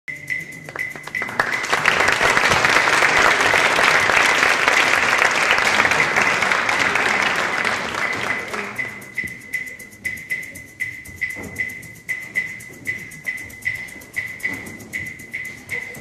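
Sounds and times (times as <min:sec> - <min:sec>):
audience applauding: 0:00.7 - 0:09.3.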